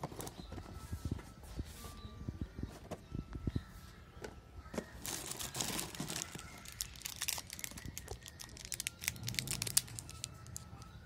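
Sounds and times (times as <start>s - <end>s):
candy wrappers crinkling: 5.0s - 11.0s.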